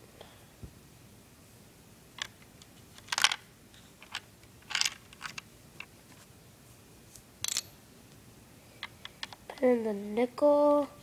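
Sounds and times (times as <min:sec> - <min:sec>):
plastic parts clicking and rattling: 0:02.2 - 0:03.4, 0:04.0 - 0:05.9.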